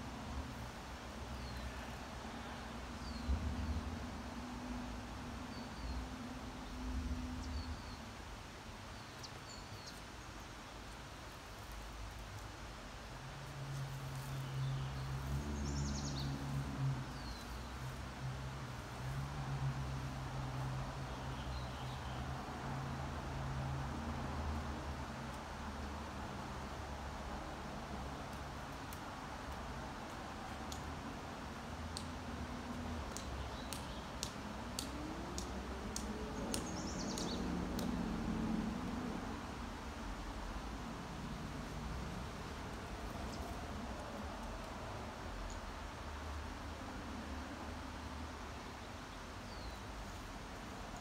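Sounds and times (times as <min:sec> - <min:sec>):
outdoor background hiss: 0:00.0 - 0:51.0
bird chirping: 0:14.2 - 0:17.9, 0:36.4 - 0:37.9.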